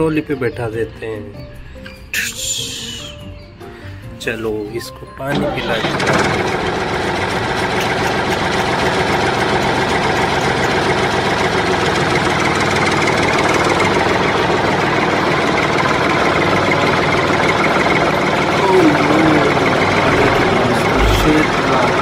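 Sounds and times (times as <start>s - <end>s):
tractor engine running: 5.3s - 22.0s.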